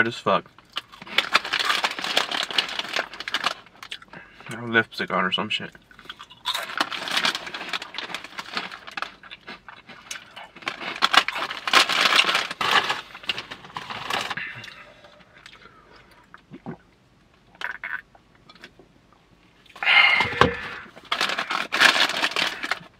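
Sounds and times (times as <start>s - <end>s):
plastic snack bag crinkling: 0.6s - 4.0s, 6.0s - 14.4s, 20.0s - 22.9s.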